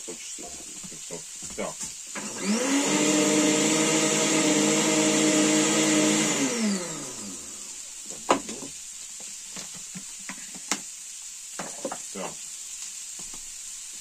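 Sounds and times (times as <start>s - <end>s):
blender motor winding down: 2.1s - 7.8s.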